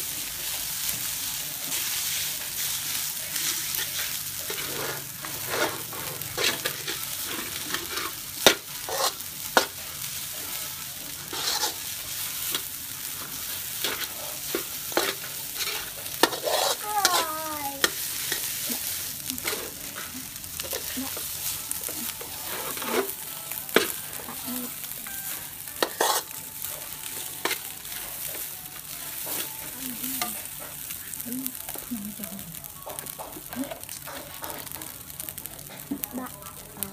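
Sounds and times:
rice sizzling in a wok: 0.0 - 36.9
metal spatula scraping a pan: 1.6 - 24.8, 25.8 - 28.4.

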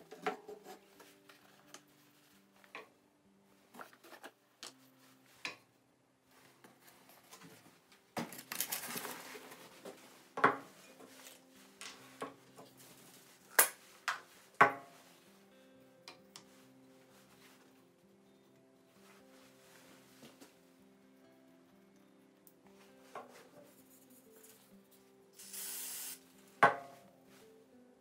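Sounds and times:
rustling: 6.4 - 10.2.

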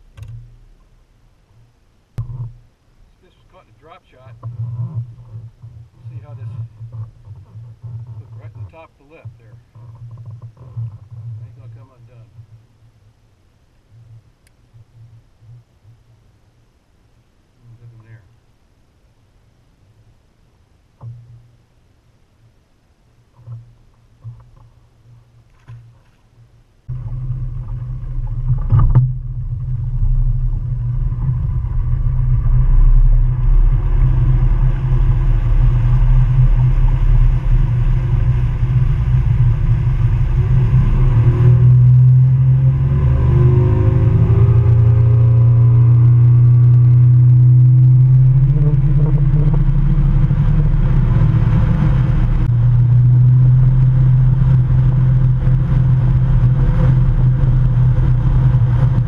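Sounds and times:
outboard motor droning: 26.9 - 59.0
water rushing along hull: 26.9 - 59.0.

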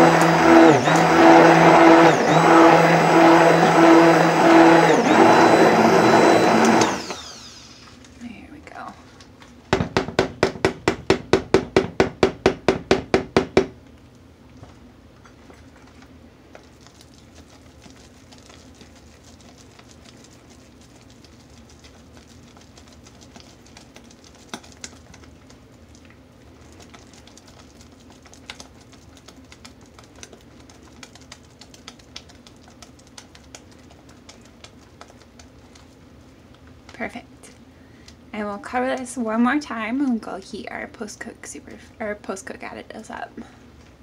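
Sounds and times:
soap paste stirred in plastic bowl: 0.0 - 8.2, 14.6 - 37.2
low steady hum: 5.0 - 44.0.

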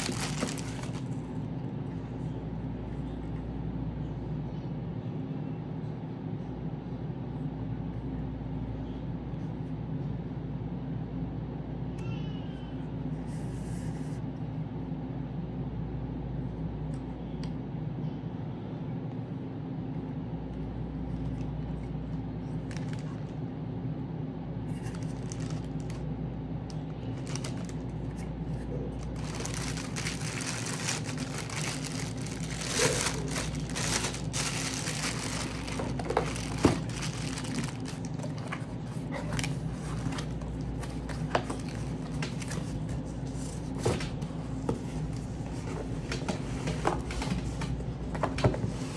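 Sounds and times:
packaging crinkling and rustling: 0.0 - 1.4, 22.6 - 23.4, 24.7 - 26.1, 27.1 - 44.2
steady low hum: 0.0 - 48.9.

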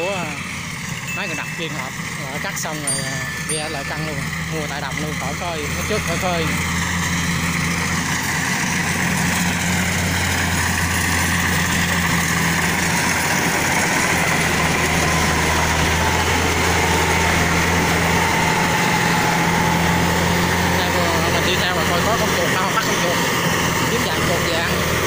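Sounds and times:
combine harvester running: 0.0 - 25.0
faint machine whine: 0.0 - 25.0.

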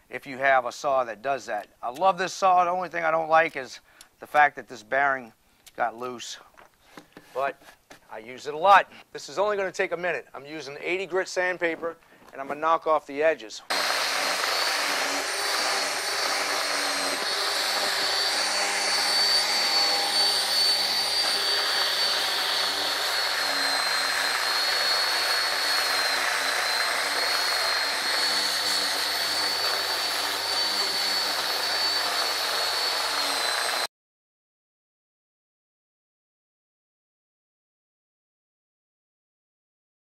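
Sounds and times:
orbital sander motor whine: 13.7 - 33.9.

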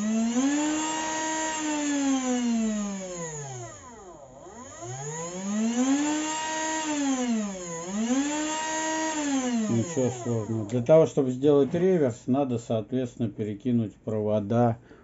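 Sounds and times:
small motor whine: 0.0 - 10.7.

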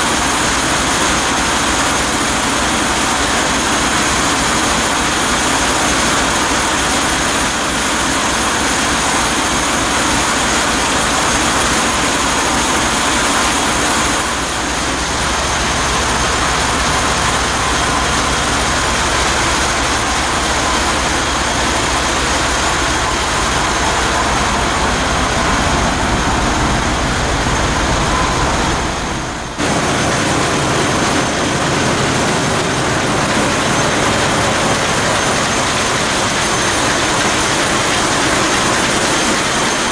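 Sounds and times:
marine diesel engine running: 0.0 - 39.9.

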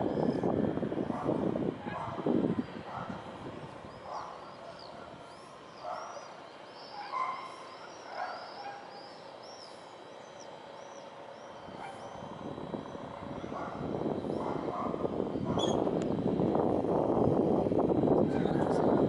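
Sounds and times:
birds chirping: 1.8 - 16.3
louder lower bird calls: 3.8 - 13.2, 15.5 - 15.9.

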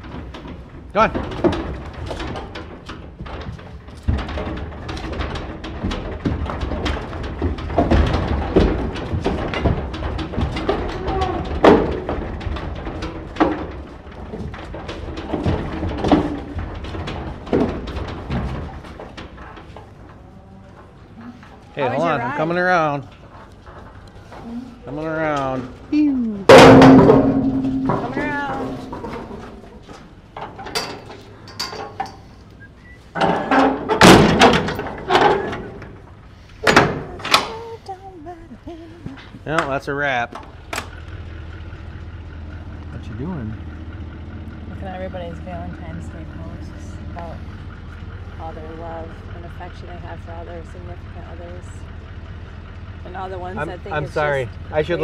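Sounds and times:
metal trailer door clanking: 0.0 - 20.2, 26.5 - 32.4, 33.0 - 37.8
cow hooves on concrete: 0.0 - 25.9, 27.6 - 37.8.

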